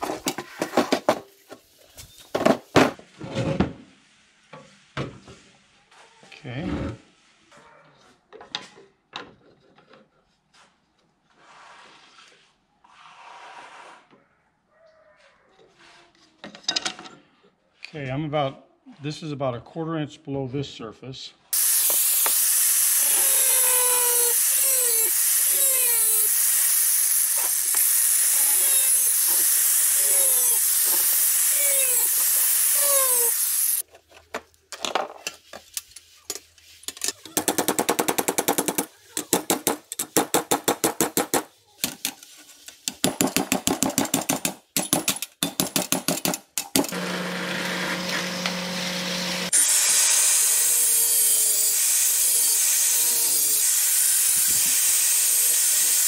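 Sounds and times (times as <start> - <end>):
power tool chattering: 21.6 - 33.8.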